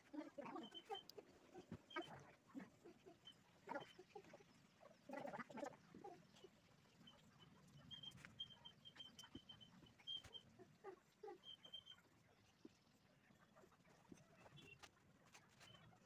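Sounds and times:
faint animal calls: 0:00.0 - 0:12.1.

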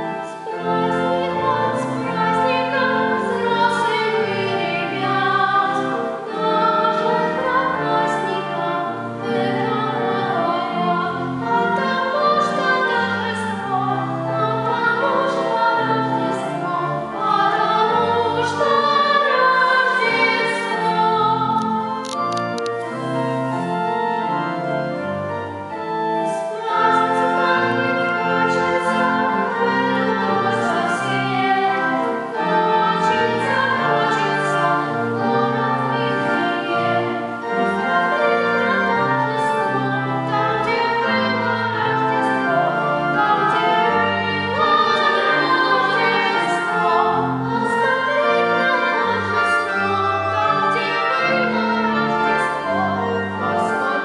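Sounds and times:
girl and boy singing duet: 0:00.0 - 0:22.2, 0:26.3 - 0:54.0
organ: 0:00.0 - 0:54.0.

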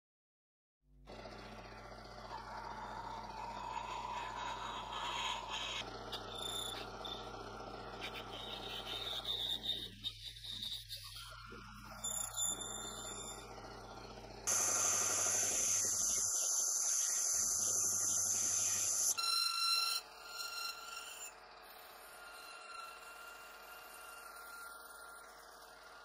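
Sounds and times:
lathe running: 0:01.1 - 0:26.0
lathe cutting metal hissing: 0:02.3 - 0:11.1, 0:14.5 - 0:19.2
ringing whine: 0:02.3 - 0:26.0.

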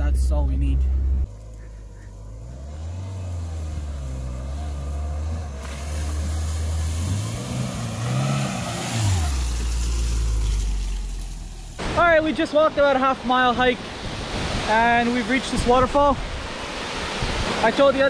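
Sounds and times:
pickup engine driving off: 0:00.8 - 0:11.8
rushing hiss: 0:05.6 - 0:11.9.

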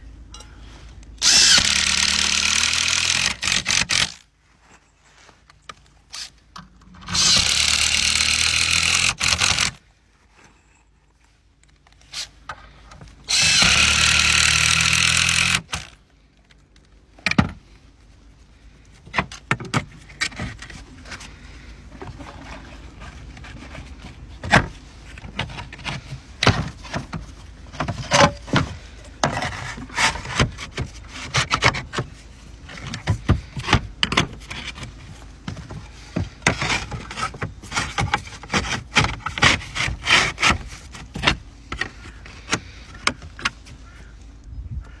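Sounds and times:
roof slates scraping and clicking: 0:18.8 - 0:44.1.

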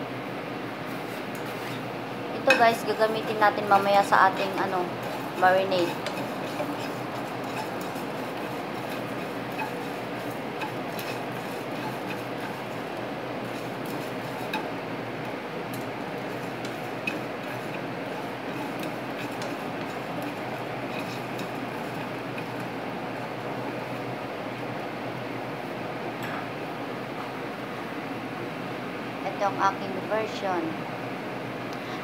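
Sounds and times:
seeds roasting in a pan: 0:00.6 - 0:25.2
spatula scraping a pan: 0:00.9 - 0:22.8.

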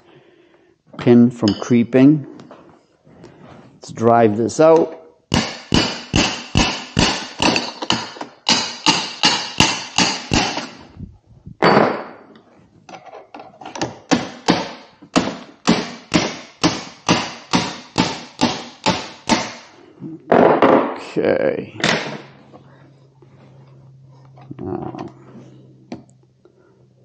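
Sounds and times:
hammer tapping metal: 0:05.3 - 0:10.8, 0:14.1 - 0:19.7.

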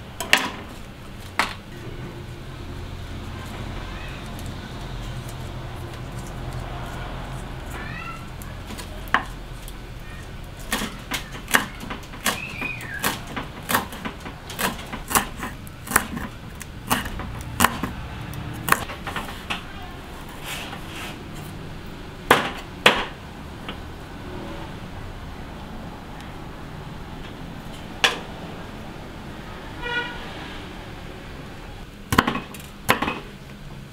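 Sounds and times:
knife chopping on wooden board: 0:10.7 - 0:18.0.

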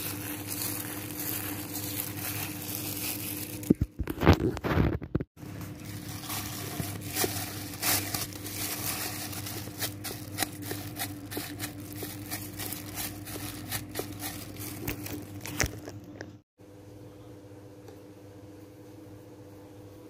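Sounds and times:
hands squishing sticky dough: 0:00.0 - 0:04.3, 0:05.4 - 0:16.1
steady low hum: 0:00.0 - 0:20.0.

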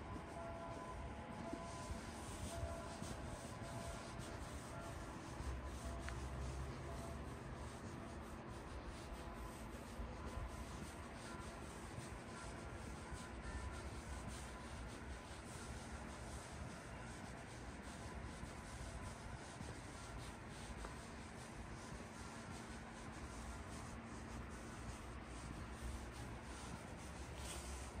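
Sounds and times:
rustling and scuffing near microphone: 0:00.0 - 0:07.1, 0:14.9 - 0:28.0
faint hum: 0:00.0 - 0:28.0.

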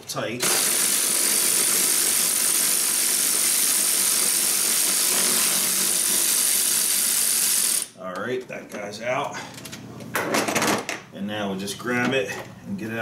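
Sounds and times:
power ratchet whining: 0:00.4 - 0:08.0.

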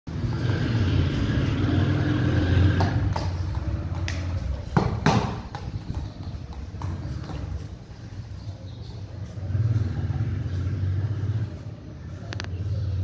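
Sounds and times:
low motor rumble: 0:00.1 - 0:13.0
sharp knocks: 0:04.1 - 0:07.5.

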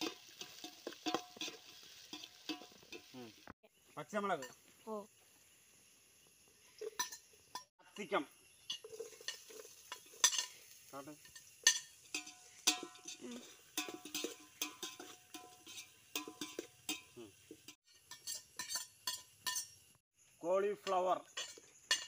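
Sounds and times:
utensil clinking against pot: 0:00.0 - 0:03.2, 0:06.8 - 0:10.6, 0:11.2 - 0:20.0, 0:20.8 - 0:22.0.

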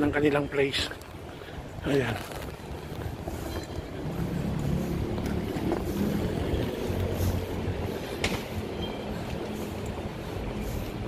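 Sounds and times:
low street rumble: 0:00.0 - 0:11.0
suitcase rolling over paving: 0:01.8 - 0:07.7.

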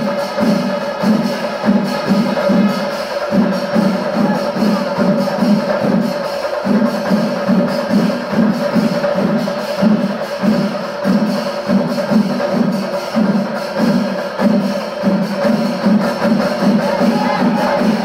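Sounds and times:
cymbals: 0:00.0 - 0:18.0
drums: 0:00.0 - 0:18.0.

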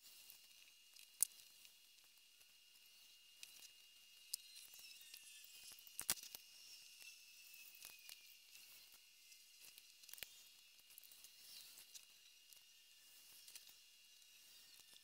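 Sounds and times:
small clicks and taps: 0:00.2 - 0:07.1, 0:09.6 - 0:12.7.

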